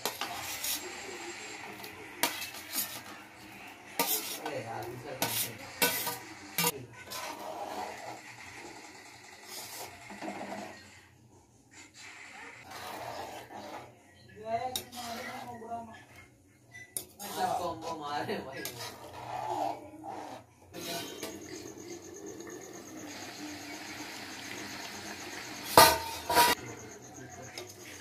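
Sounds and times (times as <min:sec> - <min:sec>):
steel bowl scraping a pan: 0:00.0 - 0:08.4, 0:09.4 - 0:11.1, 0:12.0 - 0:14.0, 0:14.6 - 0:16.2, 0:16.9 - 0:26.8
spatula stirring curry: 0:00.0 - 0:11.0, 0:11.8 - 0:26.6
metal clanks: 0:25.7 - 0:26.6.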